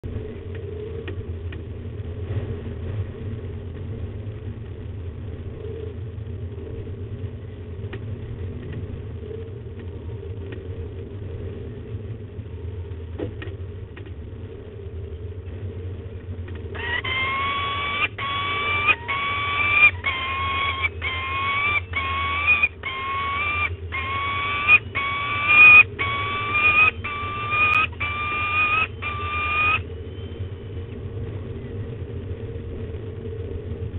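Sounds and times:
steady low hum: 0.0 - 33.9
falcon whining calls: 16.8 - 29.9.

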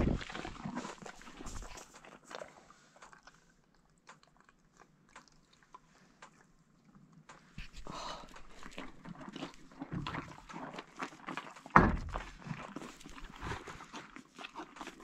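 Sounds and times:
horses nibbling at camera: 0.0 - 15.0.

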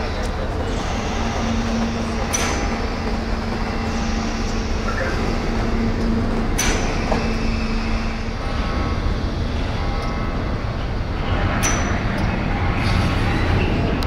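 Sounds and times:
diesel locomotive rumbling: 0.0 - 14.0
sharp metallic clanks: 1.8 - 2.9, 6.5 - 7.6, 11.2 - 13.6.

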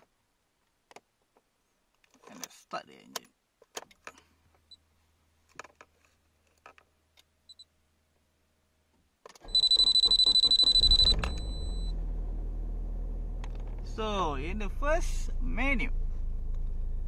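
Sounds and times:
starter cranking engine: 9.4 - 11.9
high-pitched electronic beep: 9.5 - 11.9.

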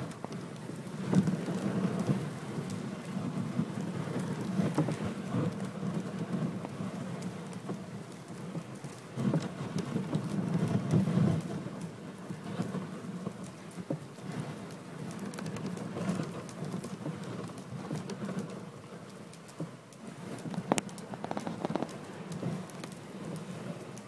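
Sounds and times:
sleigh runners crunching on snow: 0.0 - 24.0
small knocks: 20.5 - 22.0.

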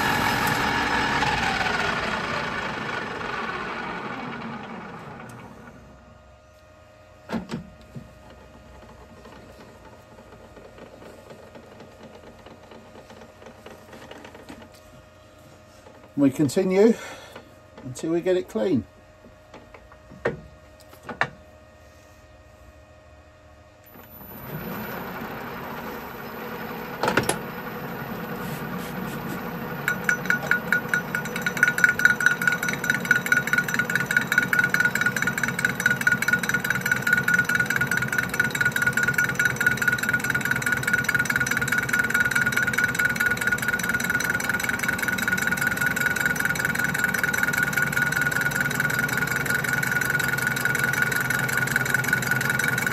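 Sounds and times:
lathe running: 0.0 - 5.8, 23.9 - 52.9
lathe tool ticking on steel plate: 29.5 - 52.9.

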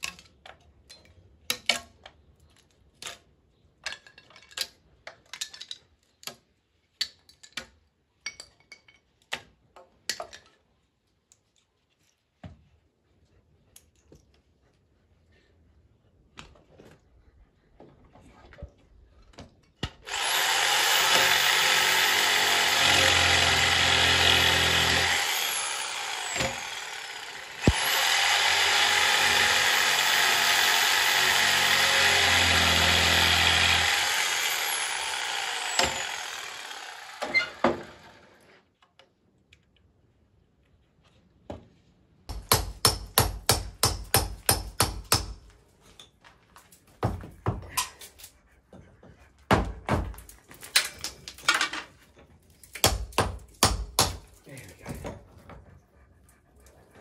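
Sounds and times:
electric planer shaving wood: 20.1 - 38.6.

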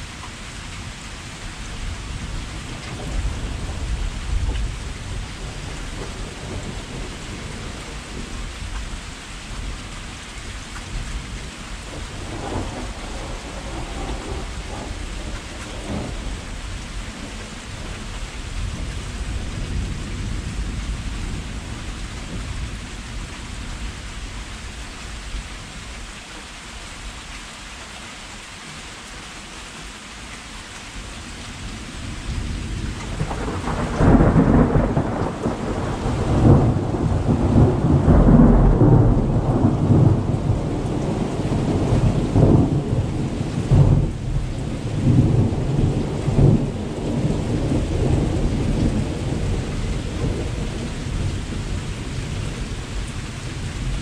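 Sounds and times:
steady rain falling: 0.0 - 54.0
thunder rumbling: 2.0 - 8.7, 10.9 - 22.8, 31.8 - 54.0.

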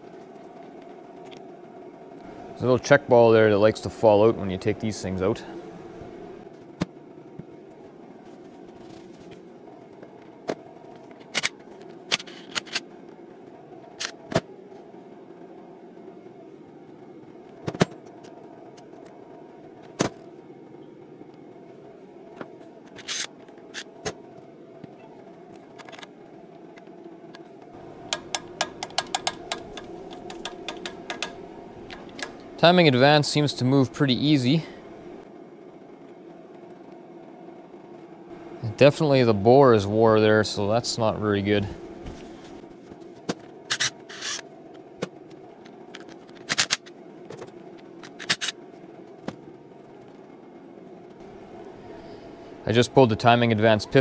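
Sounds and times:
steady low background hum: 0.0 - 54.0
metal parts clicking and tapping: 28.1 - 32.4.

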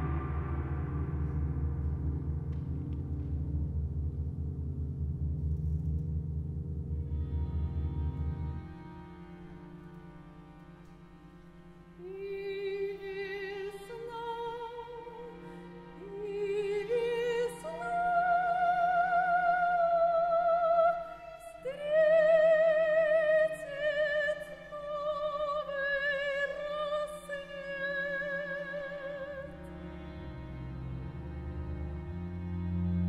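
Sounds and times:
operatic soprano singing: 0.0 - 1.9, 12.0 - 29.7
sustained low accompaniment chord: 0.0 - 20.3, 28.5 - 33.0.

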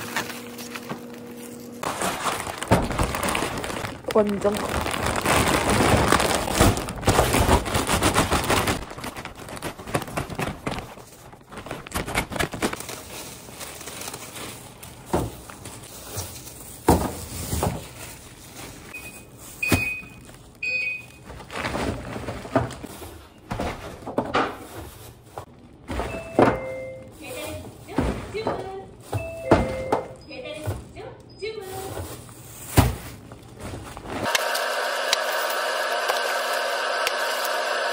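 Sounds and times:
plastic bags crinkling: 0.0 - 23.2, 31.6 - 34.3.

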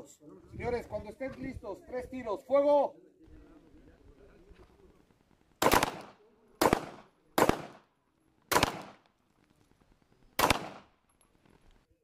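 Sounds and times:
pistol shots echoing: 5.6 - 7.9, 8.5 - 9.1, 10.4 - 11.0.

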